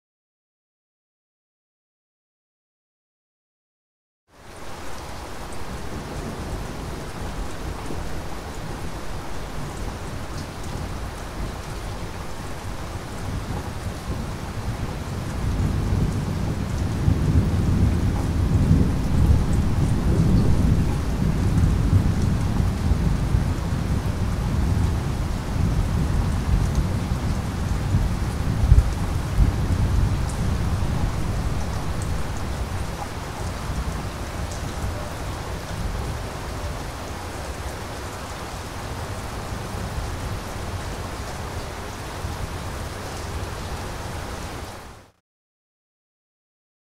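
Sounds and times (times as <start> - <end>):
steady rain: 4.3 - 45.2
thunder rumbling: 9.6 - 36.8.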